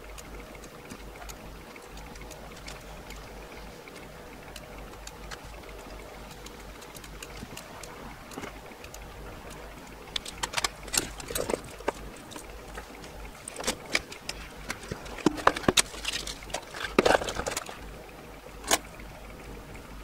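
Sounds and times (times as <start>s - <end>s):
tools clicking and tapping: 3.9s - 17.8s.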